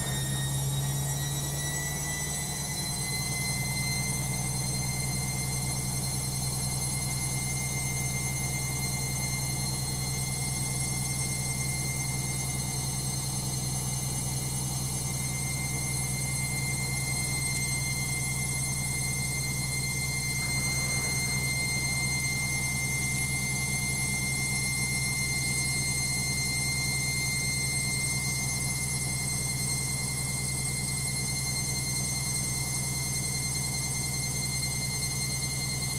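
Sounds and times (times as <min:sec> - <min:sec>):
washing machine drum spinning: 0:00.0 - 0:01.0, 0:19.0 - 0:24.2.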